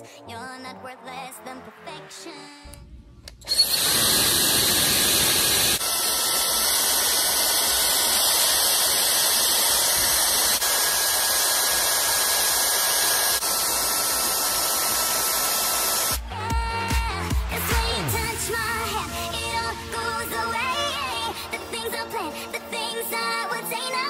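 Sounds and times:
hair dryer running: 0:03.4 - 0:23.6.

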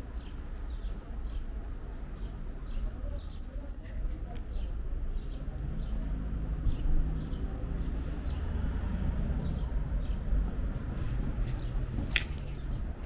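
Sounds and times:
small birds chirping: 0:00.0 - 0:13.0
steady low rumble: 0:04.2 - 0:13.0.

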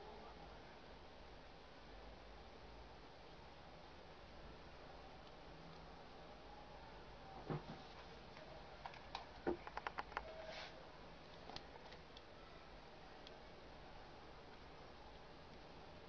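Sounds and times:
plastic clicks and taps: 0:08.8 - 0:10.3.

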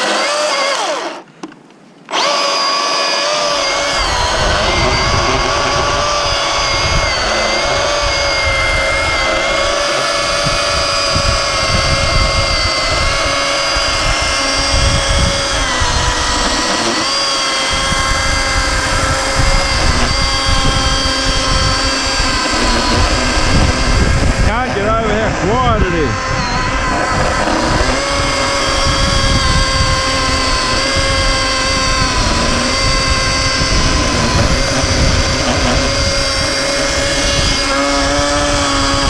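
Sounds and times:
electric chainsaw cutting log: 0:00.0 - 0:39.0.

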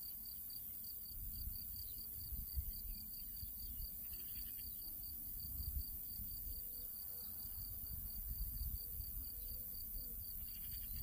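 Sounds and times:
wind rumble on microphone: 0:01.1 - 0:03.0, 0:05.3 - 0:06.6, 0:07.6 - 0:11.0.

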